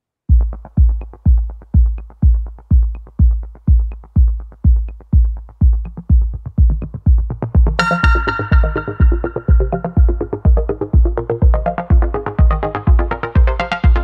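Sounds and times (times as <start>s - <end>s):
electronic music with kick drum: 0.3s - 14.0s
synth chord: 7.8s - 11.0s.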